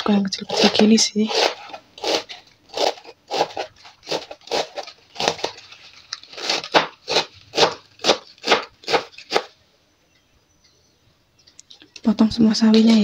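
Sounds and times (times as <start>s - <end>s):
knife chopping on plastic board: 6.4s - 9.5s.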